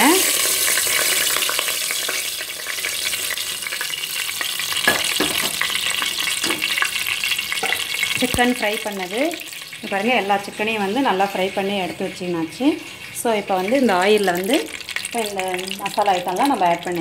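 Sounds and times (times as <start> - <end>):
oil sizzling and crackling: 0.0 - 17.0
oil popping: 4.8 - 8.8.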